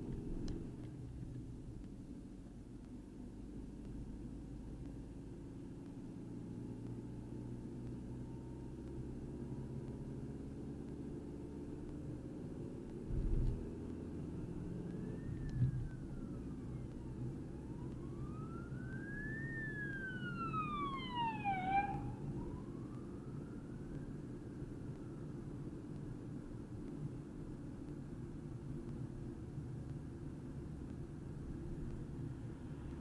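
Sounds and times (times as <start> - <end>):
car cabin road noise: 0.0 - 33.0
emergency siren wailing: 14.4 - 25.4.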